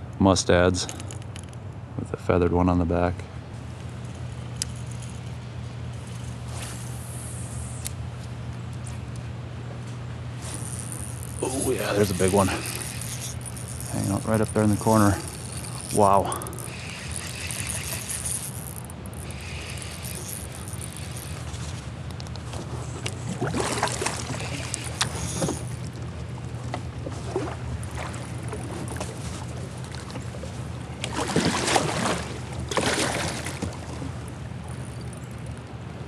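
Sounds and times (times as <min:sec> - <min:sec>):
low hum: 0:00.8 - 0:36.0
paddle splashing in water: 0:23.3 - 0:24.5, 0:31.0 - 0:34.2.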